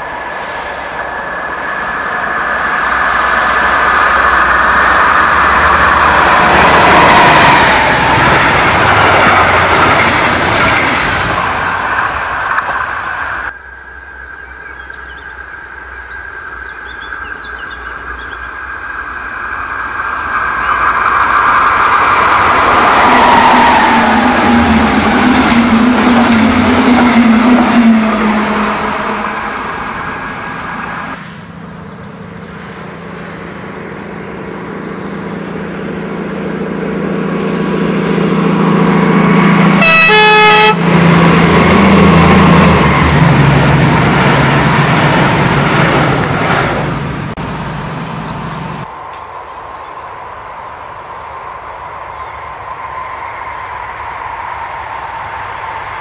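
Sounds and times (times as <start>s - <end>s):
passing train engine drone: 0.0s - 56.0s
train horn blast: 37.5s - 42.2s.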